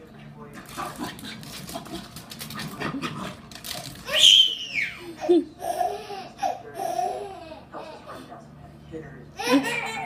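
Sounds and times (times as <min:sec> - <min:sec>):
baby laughing: 0:04.1 - 0:08.2, 0:09.4 - 0:10.0.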